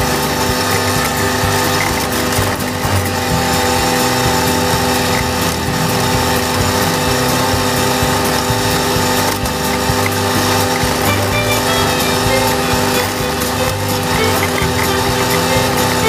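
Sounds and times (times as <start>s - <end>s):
flail mower whirring: 0.0s - 16.0s
tractor engine hum: 0.0s - 16.0s.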